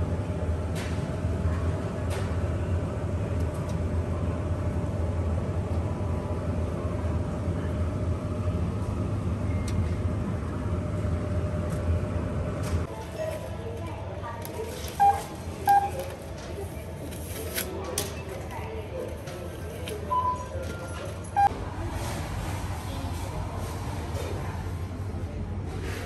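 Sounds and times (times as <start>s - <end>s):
vehicle rumbling: 21.3s - 26.0s.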